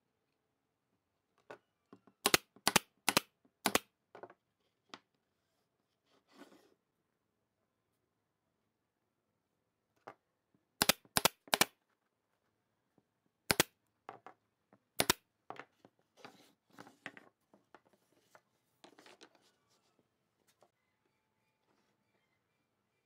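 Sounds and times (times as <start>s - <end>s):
nail gun firing into wood: 2.2s - 3.9s, 10.8s - 11.7s
wooden pieces knocking: 13.5s - 18.0s.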